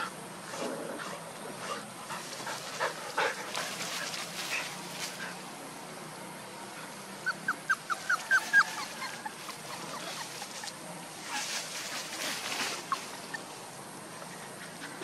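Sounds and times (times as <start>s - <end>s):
puppies squeaking: 7.2s - 10.8s
scuffling: 8.1s - 13.4s.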